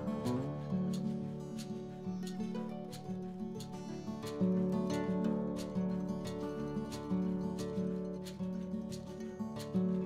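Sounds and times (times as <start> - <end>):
instrumental music: 0.0 - 10.0.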